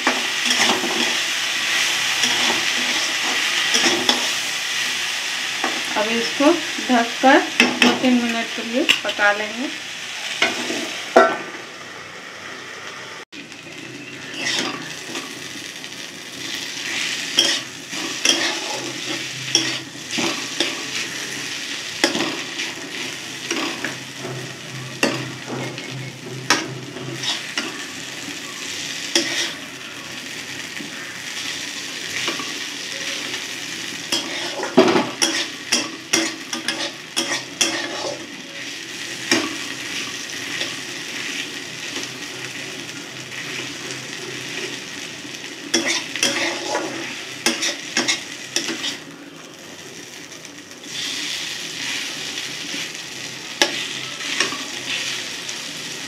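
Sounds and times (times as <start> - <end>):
vegetables sizzling in a pan: 0.0 - 56.0
spatula scraping a pan: 14.3 - 15.3, 16.8 - 27.9, 29.0 - 29.6, 34.0 - 38.4, 45.7 - 49.0.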